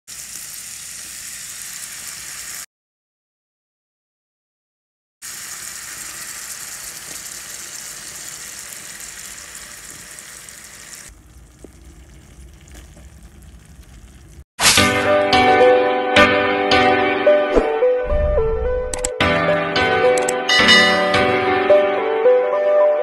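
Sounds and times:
meat sizzling in a pan: 0:00.1 - 0:02.7, 0:05.2 - 0:14.4
music: 0:14.6 - 0:23.0.

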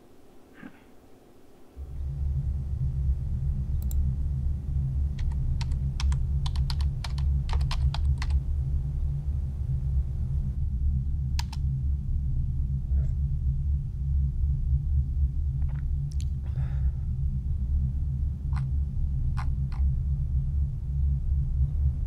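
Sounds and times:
loud low rumbling drone: 0:01.7 - 0:22.0
computer keyboard typing: 0:05.2 - 0:08.3.

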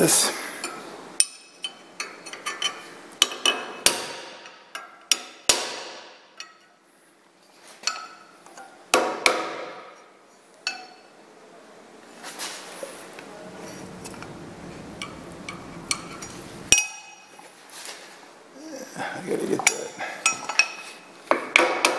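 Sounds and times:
hammer striking metal punch: 0:03.2 - 0:06.2.

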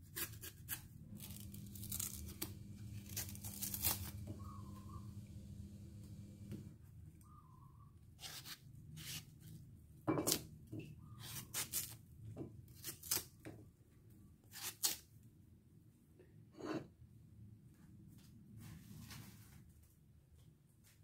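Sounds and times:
knife slicing mango: 0:00.0 - 0:05.0, 0:08.2 - 0:09.3, 0:11.2 - 0:12.0.

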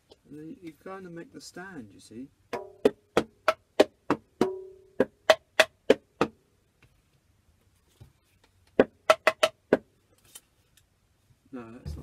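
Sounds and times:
hand taps on homemade drums: 0:02.5 - 0:06.4, 0:08.7 - 0:09.9.

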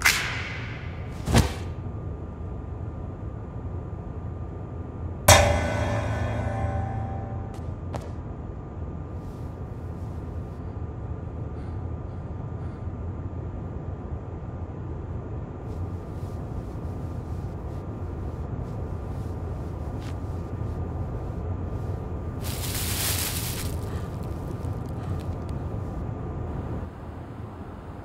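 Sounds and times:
low rumbling drone: 0:05.3 - 0:07.9.

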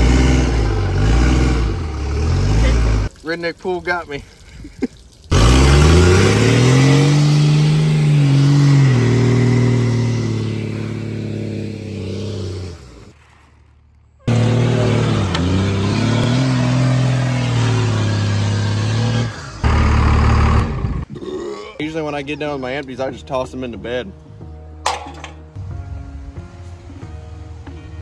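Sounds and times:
diesel truck engine revving: 0:00.0 - 0:03.1, 0:05.3 - 0:13.2, 0:14.2 - 0:21.1.

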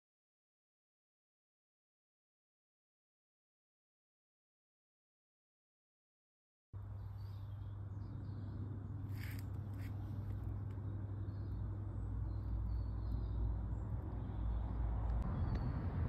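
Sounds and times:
steady low rumble: 0:06.8 - 0:16.0
faint bird calls: 0:06.9 - 0:14.5.

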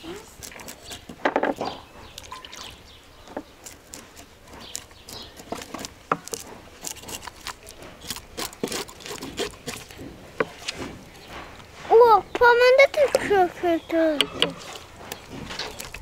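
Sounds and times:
knives scraping fish scales: 0:00.2 - 0:01.2, 0:03.6 - 0:10.9.

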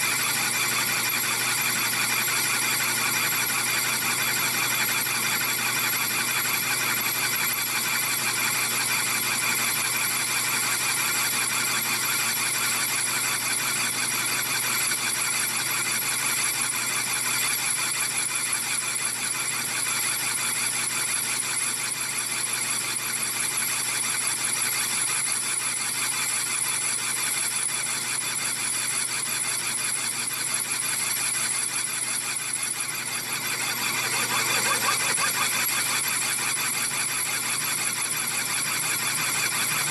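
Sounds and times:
lathe running: 0:24.8 - 0:39.9
high-pitched cutting squeal: 0:32.5 - 0:38.6.

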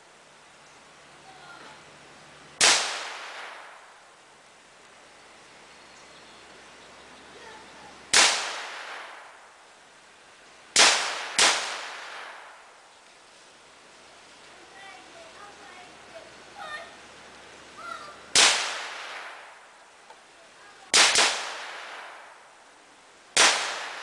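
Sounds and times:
gunshots echoing: 0:02.6 - 0:03.8, 0:08.1 - 0:09.4, 0:10.8 - 0:12.6, 0:18.4 - 0:19.5, 0:20.9 - 0:22.3, 0:23.4 - 0:24.0.

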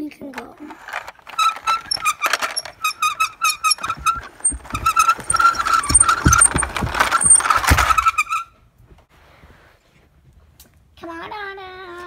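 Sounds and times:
toy being handled: 0:00.4 - 0:08.5
toy car wheels squeaking: 0:00.4 - 0:08.5.

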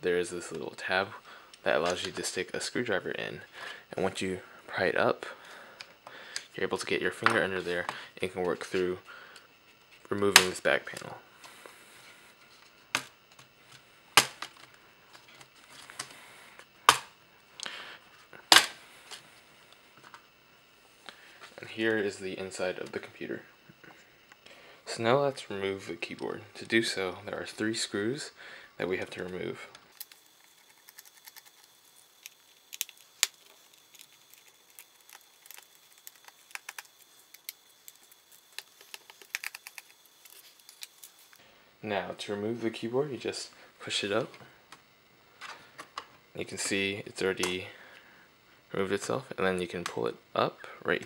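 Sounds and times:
plastic rubbing: 0:30.0 - 0:41.4.

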